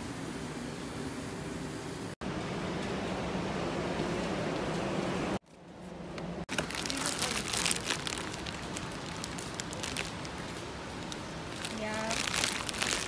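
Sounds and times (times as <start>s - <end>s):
plastic wrapper crinkling: 6.5s - 13.0s.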